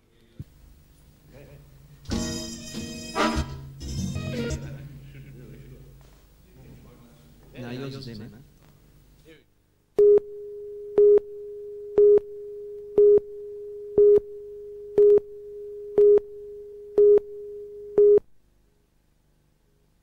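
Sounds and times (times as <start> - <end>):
countdown beeps: 10.0 - 11.3, 11.9 - 13.3, 13.9 - 15.3, 15.9 - 16.3, 16.9 - 18.2.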